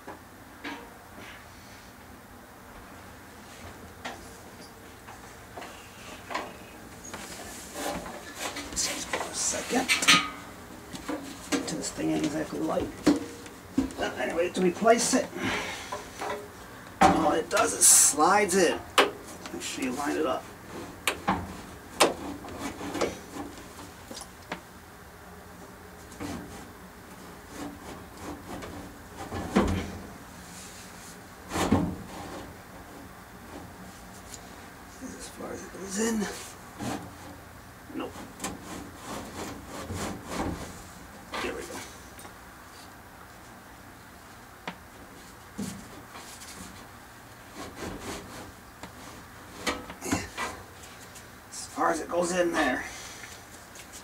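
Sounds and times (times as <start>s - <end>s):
metal knocks and clunks: 0.0s - 1.0s, 9.9s - 14.0s
sheet metal scraping and rubbing: 19.6s - 23.8s, 38.0s - 41.6s, 47.5s - 50.6s.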